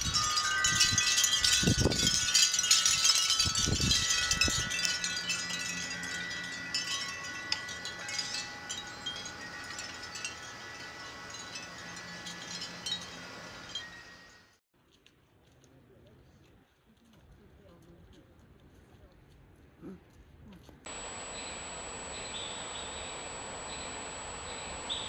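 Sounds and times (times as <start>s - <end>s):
wind chimes ringing: 0.0s - 14.6s, 20.9s - 25.0s.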